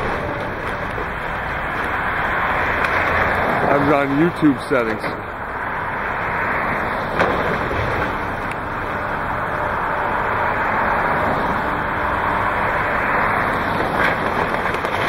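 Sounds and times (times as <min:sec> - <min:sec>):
diesel engine running: 0:00.0 - 0:15.0
wood breaking cracks: 0:13.8 - 0:15.0.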